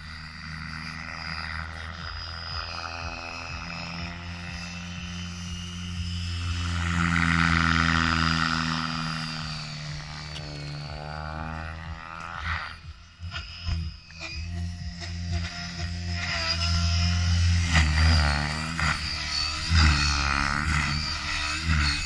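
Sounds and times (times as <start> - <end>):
rc helicopter rotor whine: 0.0 - 22.0.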